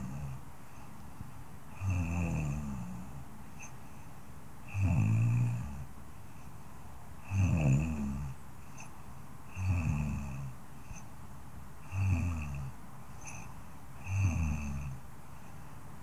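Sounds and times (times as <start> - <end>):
woman snoring softly: 0.0 - 0.9, 1.7 - 3.8, 4.6 - 5.9, 7.2 - 8.9, 9.5 - 11.1, 11.8 - 15.6.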